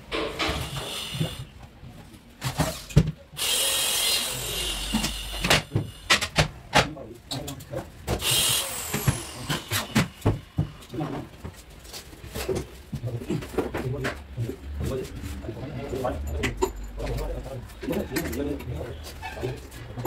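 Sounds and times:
cordless drill whining: 0:03.4 - 0:06.1, 0:08.2 - 0:10.2.

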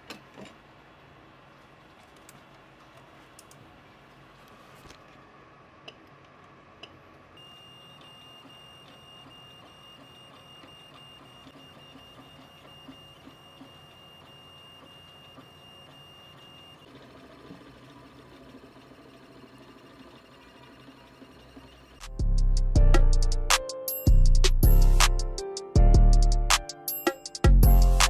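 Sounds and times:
printer high-pitched whine: 0:07.4 - 0:22.0.

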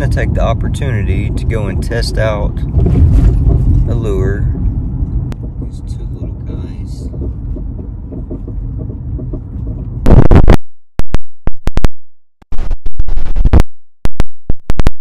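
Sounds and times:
low rumble inside car: 0:00.0 - 0:10.5
wind blasting microphone: 0:00.6 - 0:10.6.

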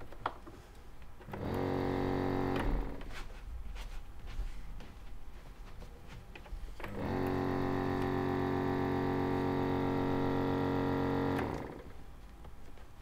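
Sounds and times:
small vacuum pump running: 0:01.3 - 0:03.0, 0:06.8 - 0:12.0.

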